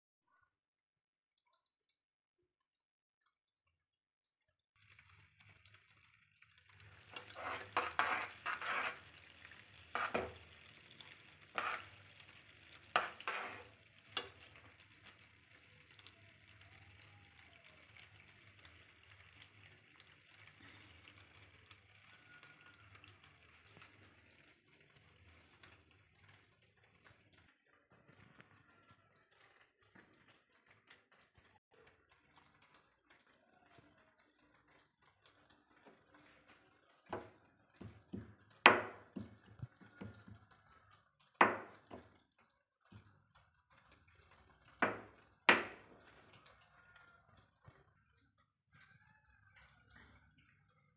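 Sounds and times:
syrup bubbling sizzle: 4.3 - 50.9
spoon clinking and scraping pan: 7.0 - 14.6.

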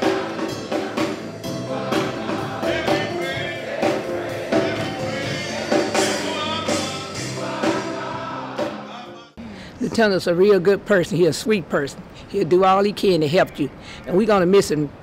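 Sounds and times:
sharp percussive beats: 0.0 - 8.9
instrumental backing: 0.0 - 9.3.

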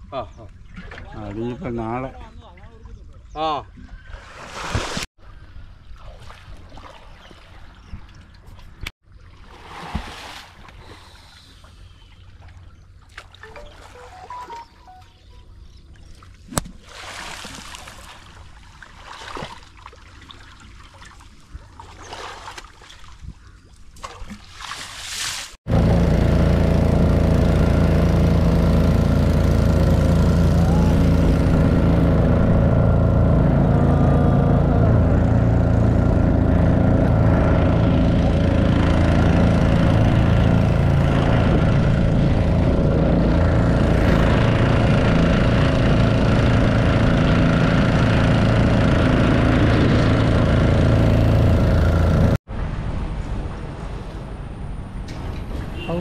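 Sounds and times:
water trickling and splashing: 5.8 - 15.0, 15.8 - 25.6
boat engine droning: 10.9 - 16.4, 25.7 - 56.0.

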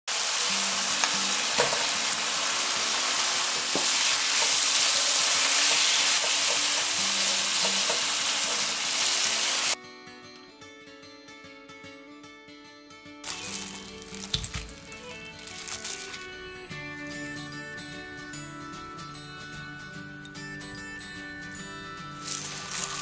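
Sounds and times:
food sizzling in a frying pan: 0.1 - 9.8, 13.2 - 16.3, 22.2 - 23.0
soft music: 0.1 - 23.0
spatula scraping and knocking pan: 3.6 - 9.4.

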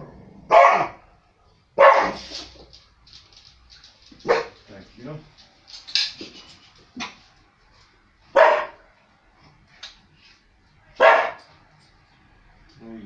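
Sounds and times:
dog barking: 0.5 - 1.0, 1.8 - 2.4, 4.2 - 4.6, 8.3 - 8.8, 11.0 - 11.5.

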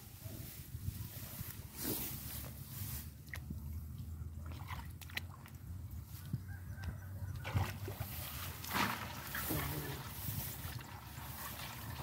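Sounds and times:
hand squelching in wet mud: 1.2 - 6.4.

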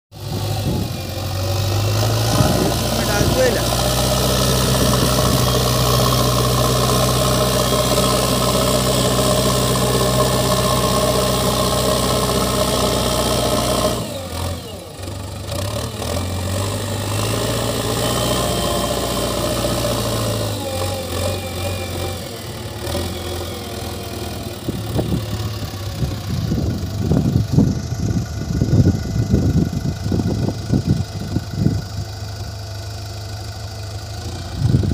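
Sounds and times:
diesel engine running: 0.1 - 34.9
loader bucket digging soil: 0.3 - 14.7.

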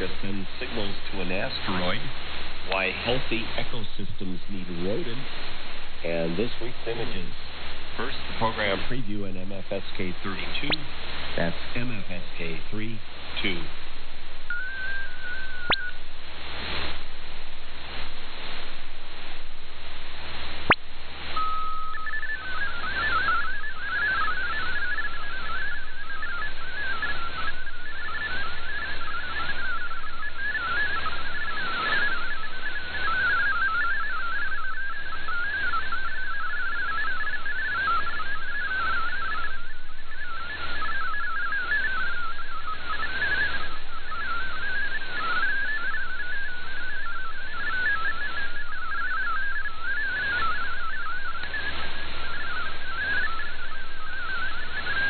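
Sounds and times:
warbling digital data tones: 0.0 - 16.2, 20.6 - 55.0
radio band noise: 0.0 - 55.0
brief steady tone: 14.4 - 16.1, 20.6 - 55.0.

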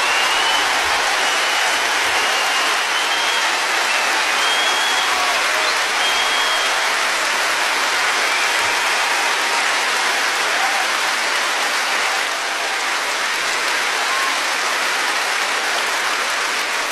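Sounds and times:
short whistles: 0.0 - 6.8
audience clapping: 0.0 - 16.9.

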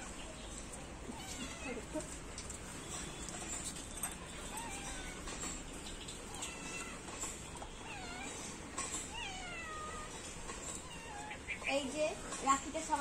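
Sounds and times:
cat meowing: 1.1 - 1.9, 4.5 - 5.4, 6.3 - 7.1, 7.8 - 10.2.

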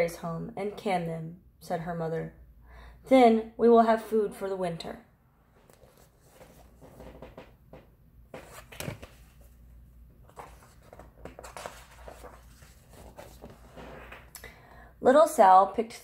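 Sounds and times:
paper pages rustling: 5.6 - 7.5, 8.3 - 9.6, 10.2 - 14.3.

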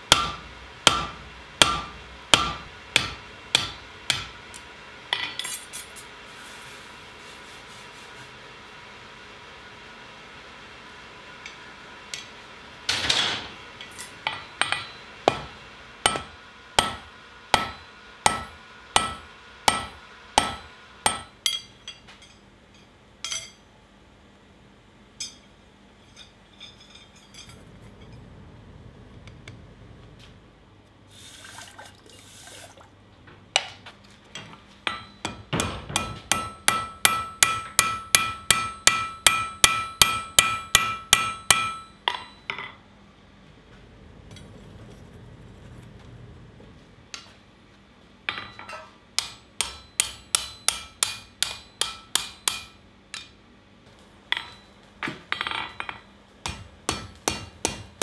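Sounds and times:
hammer striking steel on anvil: 0.0 - 5.7, 11.4 - 23.6, 25.2 - 25.6, 34.4 - 42.8, 48.3 - 53.4, 54.3 - 54.7, 55.3 - 58.0
anvil ringing: 34.9 - 42.7, 48.3 - 52.8.

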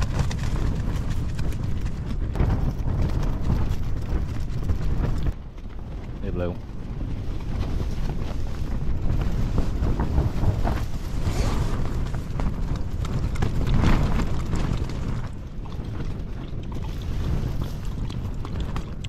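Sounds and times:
strong wind rumble: 0.0 - 19.0
tent fabric rustling: 7.4 - 12.4.

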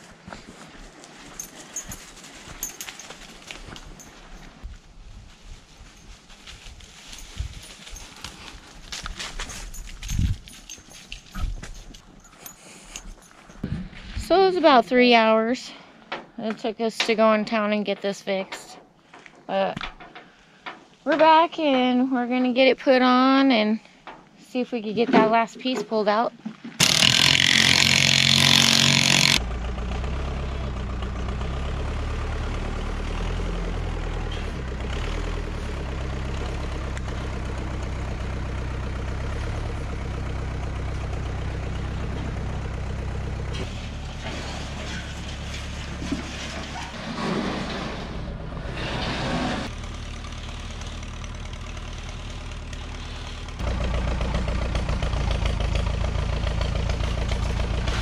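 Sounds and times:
tractor engine running: 5.6 - 15.4, 26.8 - 58.0
loud burst of noise: 26.8 - 29.4.

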